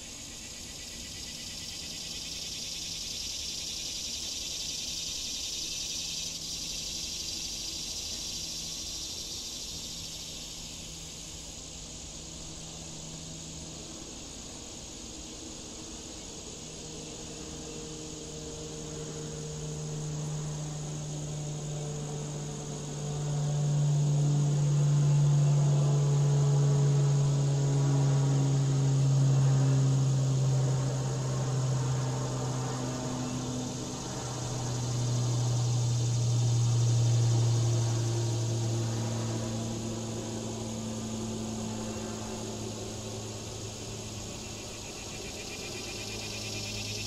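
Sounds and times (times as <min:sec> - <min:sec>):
insects trilling: 0:00.0 - 0:47.0
low droning hum: 0:09.4 - 0:47.0.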